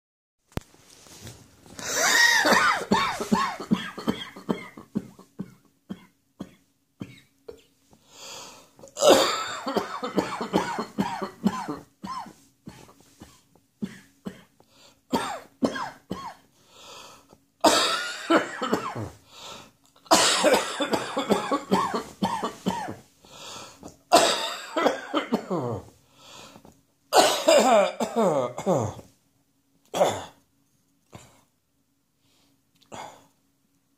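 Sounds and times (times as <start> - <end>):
person coughing: 1.8 - 7.7, 8.8 - 16.5, 17.6 - 19.2, 20.1 - 23.0, 24.0 - 25.9, 27.1 - 29.1, 29.9 - 30.4.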